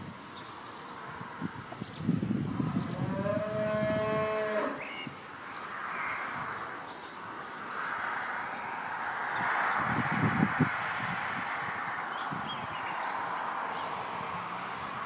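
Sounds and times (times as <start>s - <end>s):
cow mooing: 2.9s - 4.8s.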